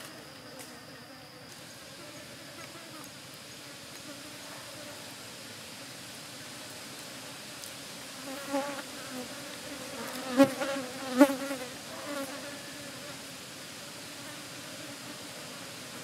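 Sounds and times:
flying insect buzzing: 0.0s - 5.2s, 8.2s - 13.3s
steady background hiss: 0.0s - 16.0s.

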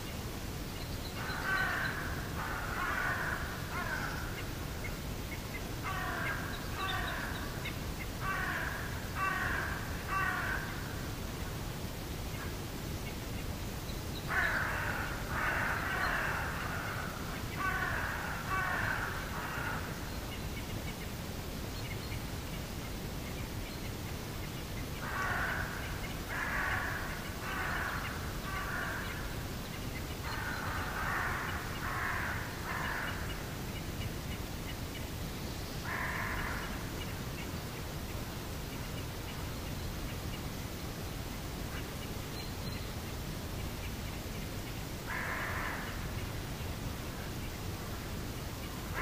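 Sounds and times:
crows cawing: 1.2s - 4.4s, 5.8s - 7.6s, 8.2s - 11.0s, 14.3s - 20.0s, 25.0s - 29.4s, 30.2s - 33.6s, 35.8s - 36.9s, 45.1s - 46.1s.

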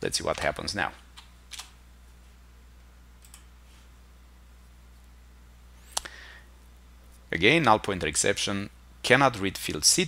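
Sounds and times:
low steady hum: 0.0s - 10.0s
computer clicks: 3.2s - 3.5s.

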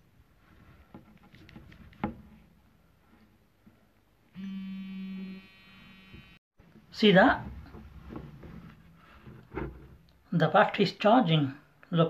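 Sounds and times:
smartphone vibrating buzz: 4.4s - 6.4s.

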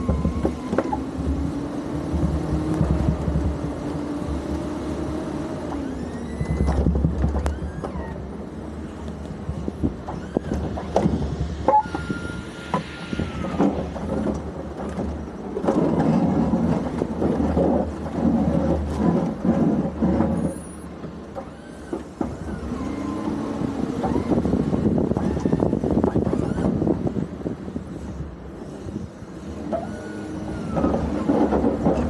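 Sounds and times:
snow plow scraping pavement: 0.0s - 32.0s
brief high whine: 11.6s - 14.0s.

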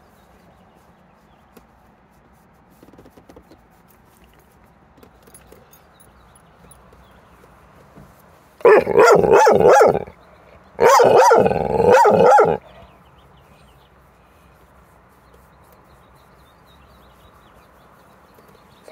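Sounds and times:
dog barking: 8.6s - 10.1s, 10.8s - 12.8s.

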